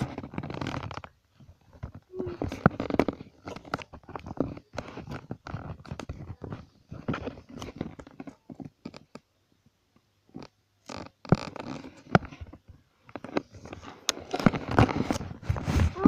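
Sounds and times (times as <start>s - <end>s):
microphone handling noise: 11.1s - 16.0s.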